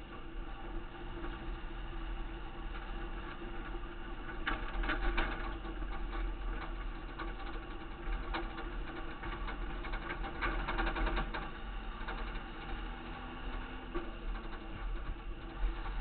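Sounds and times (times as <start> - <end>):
truck engine hum: 0.0 - 16.0
rattling and clicking: 3.2 - 16.0.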